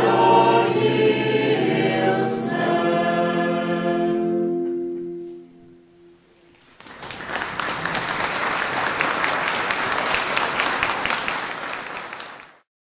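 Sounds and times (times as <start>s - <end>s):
audience applauding: 6.6s - 12.7s.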